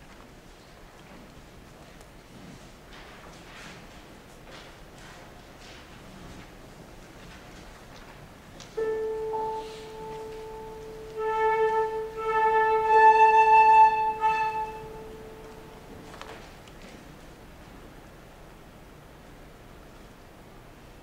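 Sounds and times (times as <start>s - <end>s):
flute long held note: 8.8s - 16.0s
piano note ringing: 8.8s - 16.0s.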